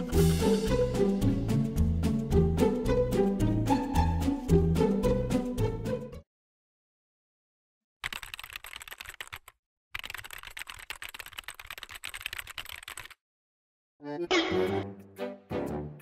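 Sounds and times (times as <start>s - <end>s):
music: 0.0s - 6.3s, 14.0s - 16.0s
rapid keyboard key clicks: 8.0s - 13.2s.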